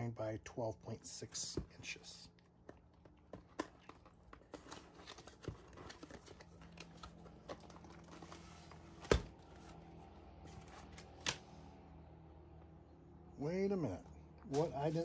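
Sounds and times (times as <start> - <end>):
packaging taps and rustles: 1.8 - 9.4.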